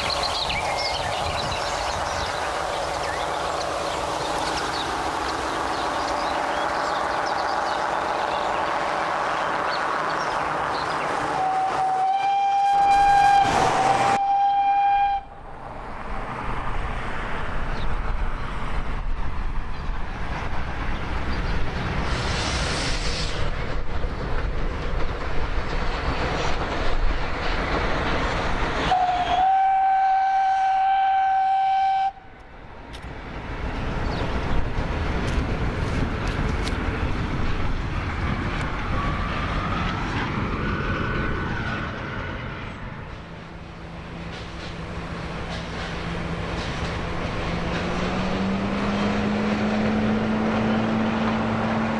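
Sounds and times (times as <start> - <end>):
train rumbling on track: 0.0 - 51.9
steam locomotive whistle: 11.4 - 15.3, 28.9 - 32.3
steam hiss: 22.0 - 23.6.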